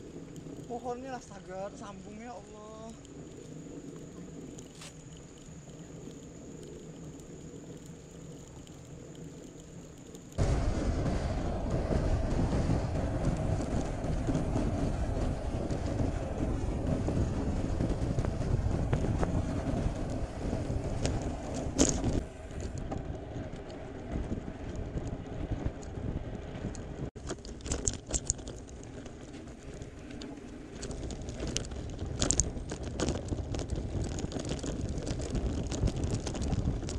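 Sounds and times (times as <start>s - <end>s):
bike clicks and rattles: 0.0s - 10.4s, 12.9s - 36.9s
wind rushing over microphone: 0.0s - 36.9s
tyres rumbling on road: 10.4s - 36.9s.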